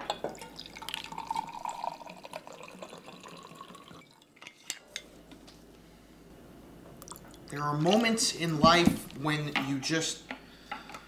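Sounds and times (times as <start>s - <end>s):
liquor pouring into a glass: 0.2s - 4.4s.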